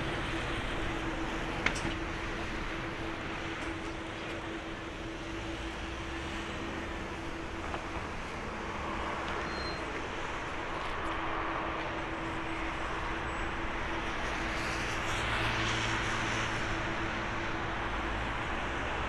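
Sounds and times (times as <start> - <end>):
jet engines humming: 0.0 - 19.0.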